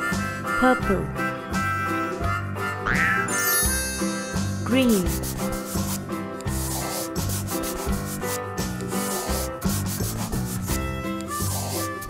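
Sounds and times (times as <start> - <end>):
colouring strokes scratching: 4.9 - 12.0.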